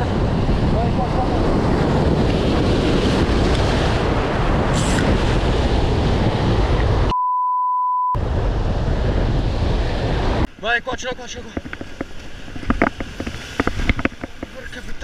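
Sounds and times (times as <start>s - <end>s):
wind buffeting microphone: 0.0s - 7.1s, 8.2s - 10.5s, 11.3s - 15.0s
censor beep: 7.1s - 8.2s.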